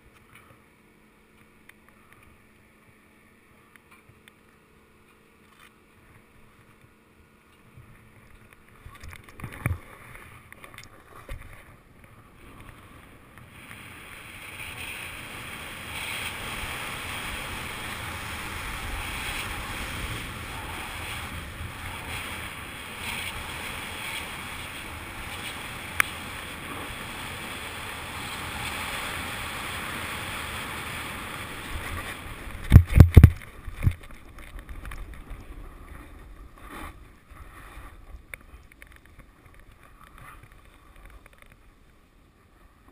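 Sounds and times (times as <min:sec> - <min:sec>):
wind: 0:00.0 - 0:42.9
snowboard scraping on snow: 0:13.5 - 0:33.7.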